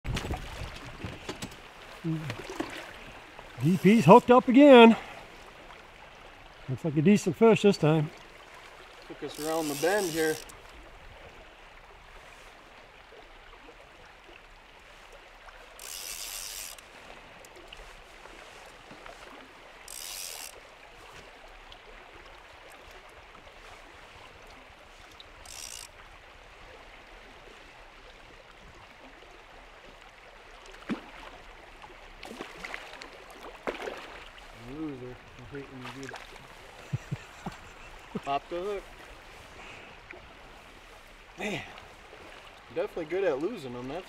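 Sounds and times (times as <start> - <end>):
river water flowing: 0.1 - 44.0
fishing reel drag buzzing: 9.2 - 10.6, 15.6 - 17.5, 19.7 - 20.6, 25.3 - 26.1.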